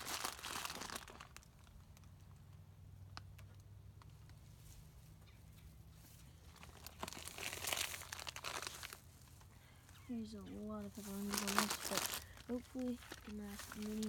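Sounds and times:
plastic packaging crinkling: 0:00.0 - 0:01.8, 0:06.6 - 0:09.4, 0:10.3 - 0:14.0.

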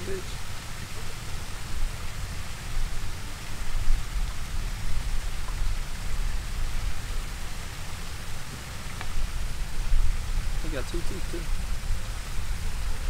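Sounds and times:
wind buffeting microphone: 0:09.1 - 0:13.0.

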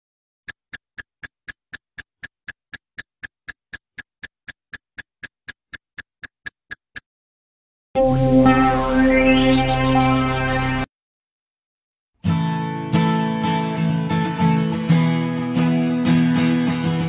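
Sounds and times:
sharp ticking counter: 0:00.5 - 0:07.1
loud music with rising sweep: 0:08.0 - 0:10.9.

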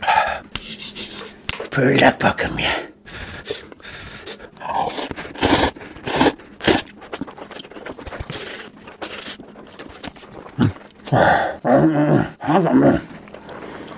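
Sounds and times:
person slurping noodles: 0:04.3 - 0:11.6
chewing mouth noises: 0:04.6 - 0:11.2.

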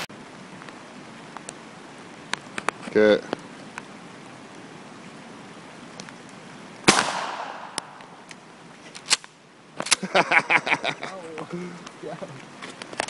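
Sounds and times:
shotgun shot with echo: 0:06.9 - 0:08.1.

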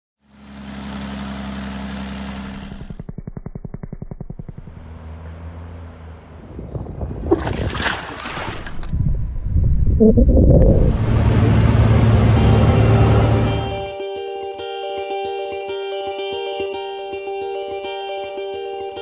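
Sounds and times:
aircraft engine and propeller: 0:00.2 - 0:05.4, 0:10.9 - 0:13.9
water splashing and churning: 0:06.7 - 0:09.0.

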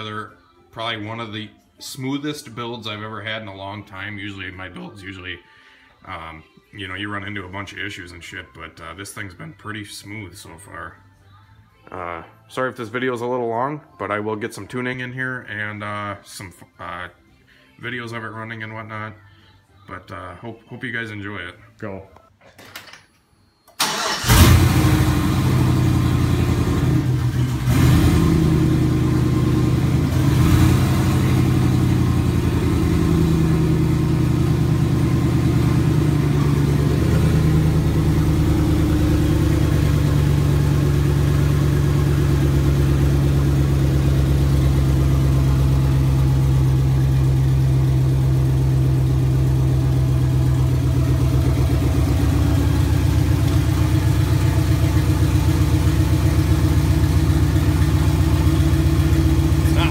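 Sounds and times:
engine revving: 0:23.8 - 0:59.9
truck engine idling: 0:23.8 - 0:59.9.

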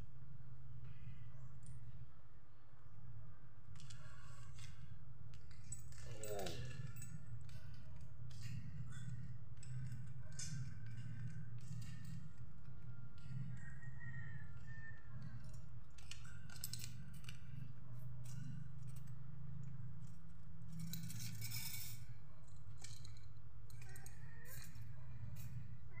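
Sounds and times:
steady low hum: 0:00.0 - 0:26.0
metal engine parts clinking: 0:03.8 - 0:25.6
metallic rattle: 0:05.5 - 0:25.6.

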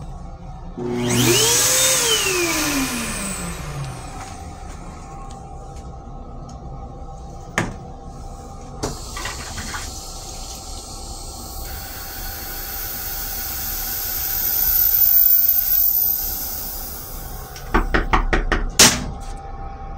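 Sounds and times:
toilet flush click: 0:08.8 - 0:10.7
toilet water rushing: 0:08.9 - 0:18.1.

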